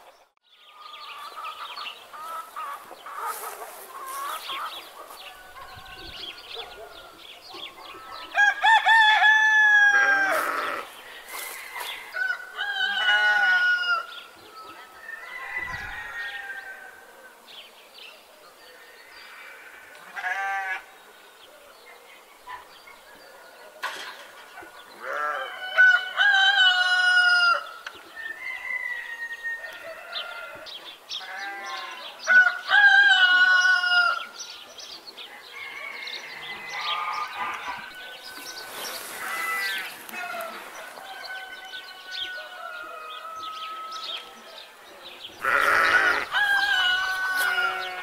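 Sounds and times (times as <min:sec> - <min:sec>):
chickens clucking: 0:00.0 - 0:00.4, 0:01.1 - 0:08.4
bleating: 0:10.0 - 0:11.0, 0:19.6 - 0:20.9, 0:25.0 - 0:25.5, 0:31.2 - 0:32.0, 0:39.2 - 0:40.5, 0:45.4 - 0:46.5, 0:47.1 - 0:48.0.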